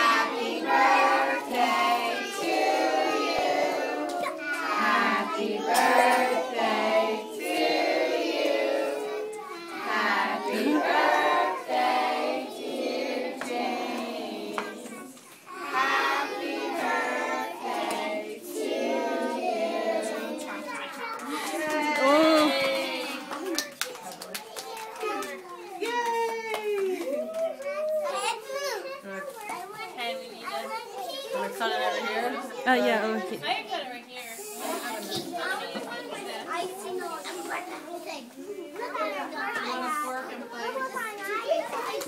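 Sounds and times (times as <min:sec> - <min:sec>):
young children singing: 0:00.0 - 0:21.6.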